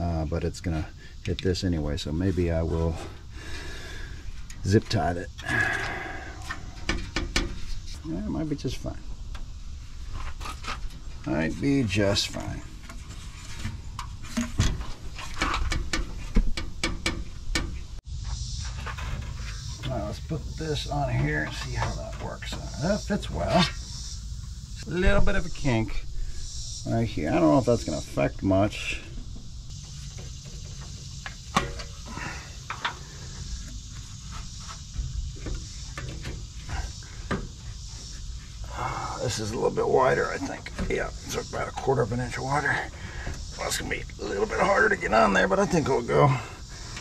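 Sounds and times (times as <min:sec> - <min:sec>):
clicks and knocks of radiator handling: 0:12.9 - 0:17.8, 0:30.1 - 0:32.1.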